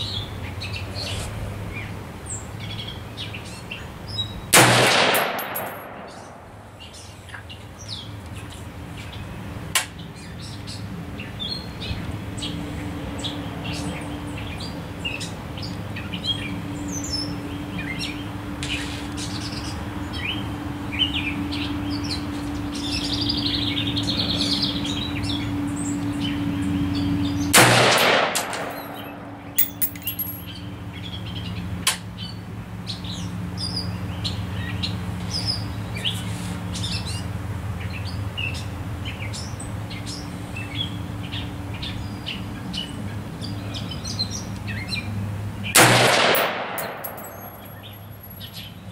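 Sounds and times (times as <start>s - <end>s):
rifle shot: 4.6s - 6.6s, 27.6s - 29.7s, 45.8s - 47.6s
songbirds chirping: 5.2s - 45.8s.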